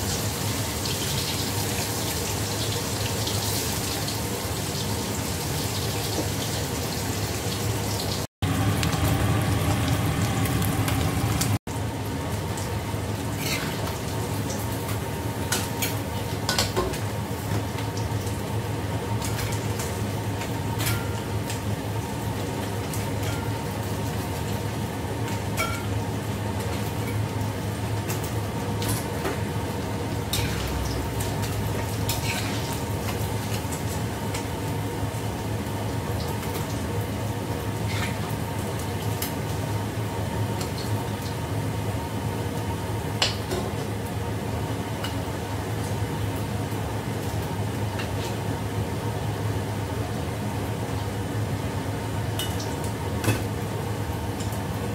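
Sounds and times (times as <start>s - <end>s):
food deep-frying in oil: 0.0s - 54.9s
low hum: 8.4s - 11.6s.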